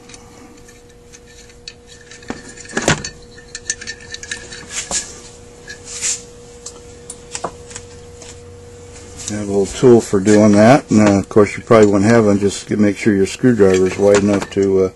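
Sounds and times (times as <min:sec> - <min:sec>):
metal parts clicking and scraping: 0:00.0 - 0:06.8, 0:09.8 - 0:14.9
faint steady hum: 0:00.0 - 0:14.9.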